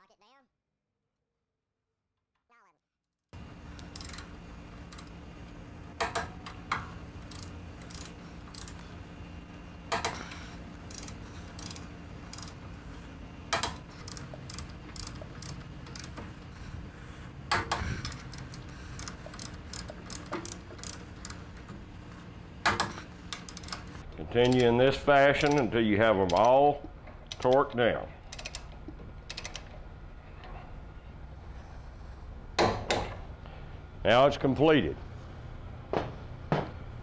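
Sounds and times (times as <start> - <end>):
ratchet wrench clicking: 3.8 - 4.3, 4.9 - 5.1, 7.2 - 8.8, 9.9 - 12.6, 13.5 - 16.2, 17.5 - 21.4, 22.8 - 23.8.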